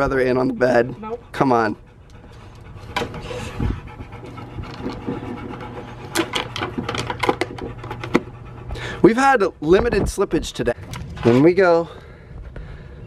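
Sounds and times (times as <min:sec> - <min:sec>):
dog panting: 0:00.0 - 0:10.8
dog claws clicking and knocking: 0:04.6 - 0:08.3.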